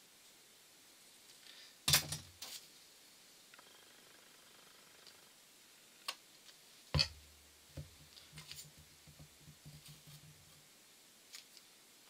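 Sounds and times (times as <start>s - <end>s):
faint taps and handling: 6.5s - 10.6s
knock on wooden table: 9.0s - 10.4s.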